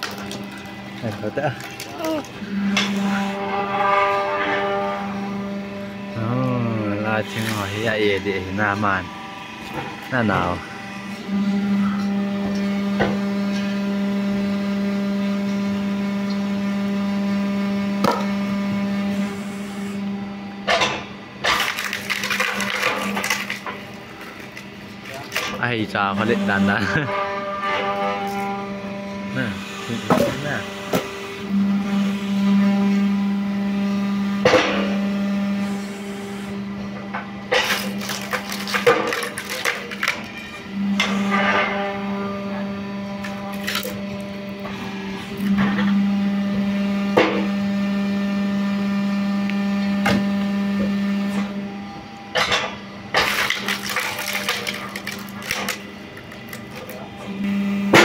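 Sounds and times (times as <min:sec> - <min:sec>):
wood splitter motor humming: 0:00.0 - 0:58.0
wood cracking: 0:21.4 - 0:25.6, 0:37.6 - 0:40.3, 0:43.2 - 0:44.0, 0:53.2 - 0:57.0.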